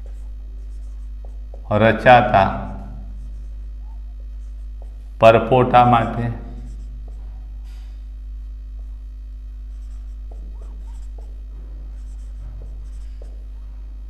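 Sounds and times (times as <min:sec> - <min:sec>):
marker writing on whiteboard: 0:00.0 - 0:05.0, 0:06.6 - 0:07.9, 0:09.7 - 0:13.6
steady low hum: 0:00.0 - 0:14.0.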